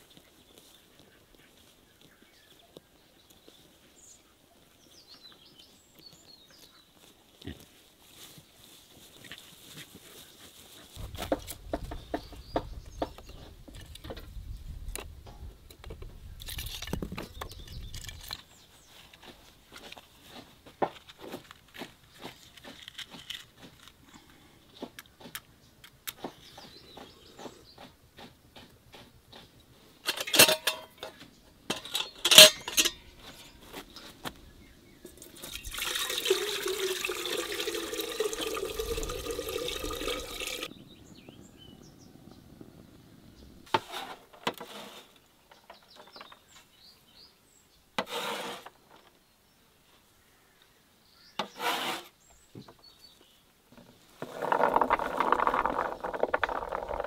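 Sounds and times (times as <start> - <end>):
water pouring into kettle: 35.4 - 40.7.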